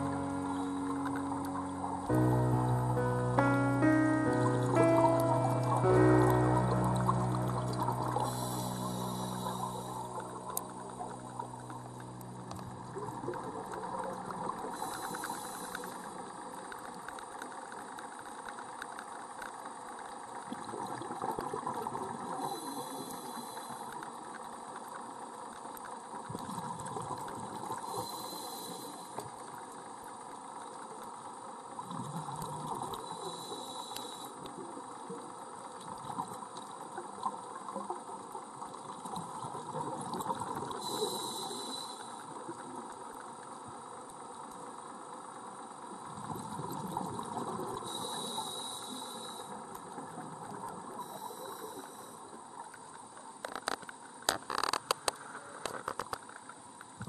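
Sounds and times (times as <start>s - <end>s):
underwater crackling hiss: 7.5s - 11.8s, 12.5s - 20.1s, 20.7s - 30.6s, 31.2s - 52.7s, 53.4s - 57.0s
diver regulator breathing: 8.2s - 10.2s, 14.7s - 16.0s, 27.9s - 29.2s, 33.1s - 34.4s, 40.8s - 42.3s, 47.9s - 49.5s.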